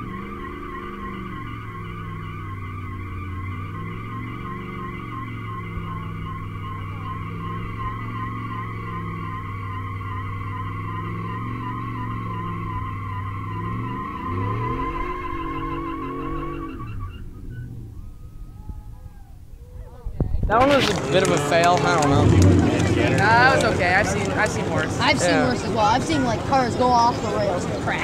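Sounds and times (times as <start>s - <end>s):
truck engine revving high: 0.0s - 19.1s, 20.5s - 28.0s
tyres squealing: 0.0s - 19.4s.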